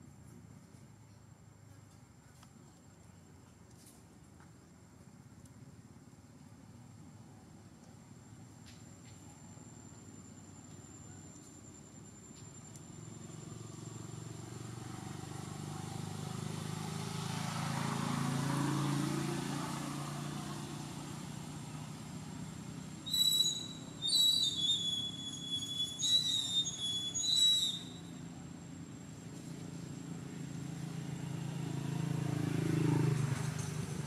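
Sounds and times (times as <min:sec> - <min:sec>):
vehicle passing rumble: 0:12.8 - 0:24.4, 0:27.6 - 0:34.0
high-pitched squeals: 0:23.1 - 0:28.1.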